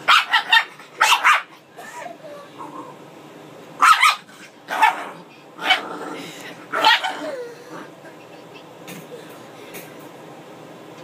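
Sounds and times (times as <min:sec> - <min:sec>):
puppy yapping: 0:00.0 - 0:01.6, 0:03.8 - 0:05.9, 0:06.7 - 0:07.4.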